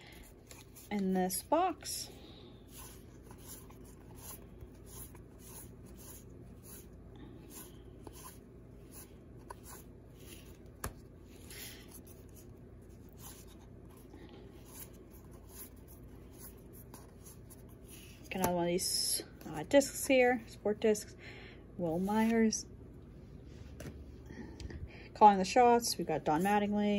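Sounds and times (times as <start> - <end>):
cards flipping with papery swish: 0.3 - 1.0.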